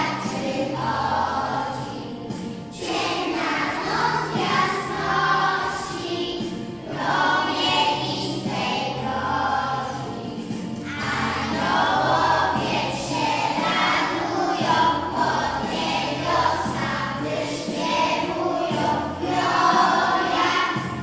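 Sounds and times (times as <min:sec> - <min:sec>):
children singing in chorus: 0:00.0 - 0:21.0
instrumental backing music: 0:00.0 - 0:21.0.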